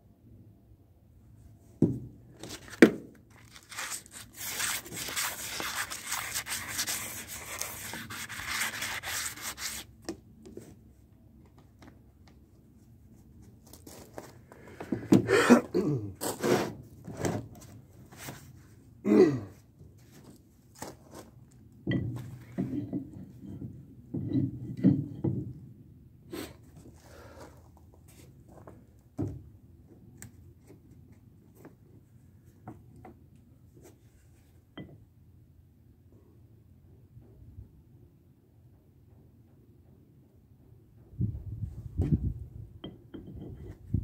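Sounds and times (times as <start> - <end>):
metal rubbing: 3.4 - 9.8.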